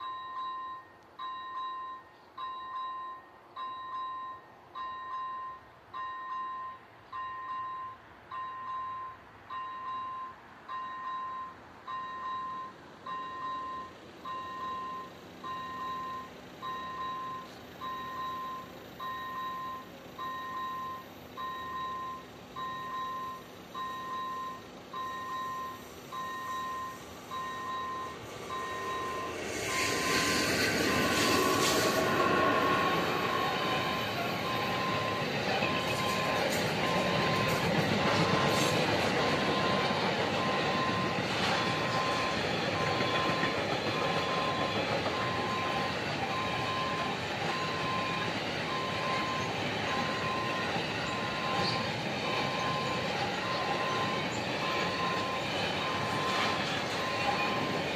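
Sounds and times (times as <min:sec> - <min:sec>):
level crossing warning bell: 0:00.0 - 0:57.9
train wheels rumbling on rails: 0:14.4 - 0:57.9.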